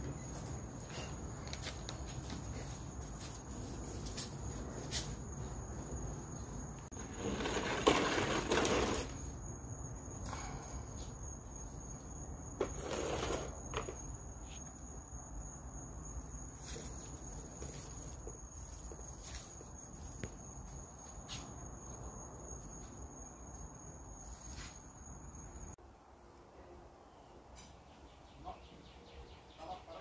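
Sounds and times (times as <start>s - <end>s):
crickets chirping: 0.0s - 30.0s
rustling scuffing noises: 0.2s - 6.6s, 16.4s - 21.8s.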